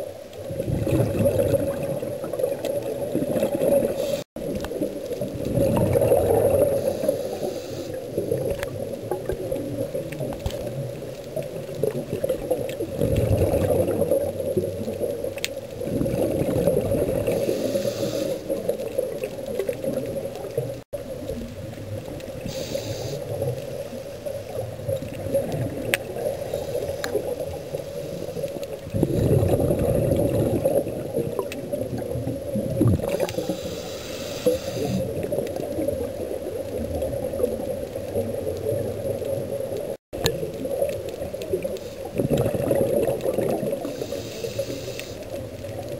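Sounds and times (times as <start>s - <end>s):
exhaled bubbles gurgling underwater: 0.0s - 45.9s
regulator hissing inhalations: 3.9s - 4.3s, 6.7s - 8.0s, 17.3s - 18.6s, 22.4s - 23.4s, 26.3s - 28.6s, 33.2s - 35.0s, 43.8s - 45.3s.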